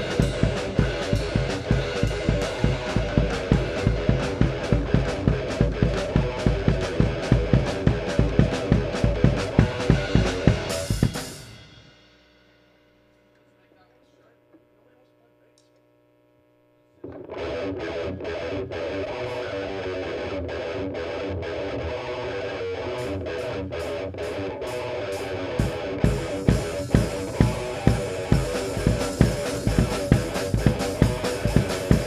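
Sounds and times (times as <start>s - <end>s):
cymbals: 0.0s - 13.1s
distorted electric guitar riff: 0.0s - 13.2s, 17.0s - 32.0s
kick drum beat: 26.0s - 32.0s.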